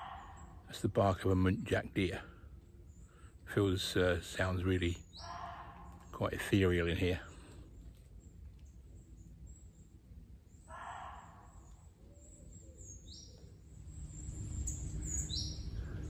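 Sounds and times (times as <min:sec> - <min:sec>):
deer barking: 0:00.0 - 0:00.7, 0:05.1 - 0:06.1, 0:10.7 - 0:11.7.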